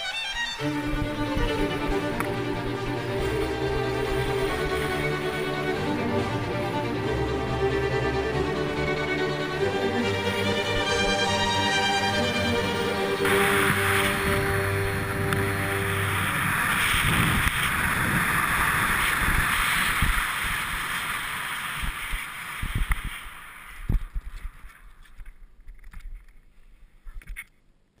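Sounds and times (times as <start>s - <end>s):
wind rushing over microphone: 0.3s - 25.0s.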